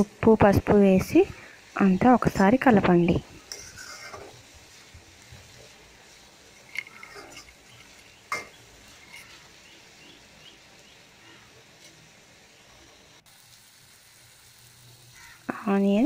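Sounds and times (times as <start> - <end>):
spoon stirring frying onions: 0.0 - 15.6
faint sizzle: 0.0 - 16.0.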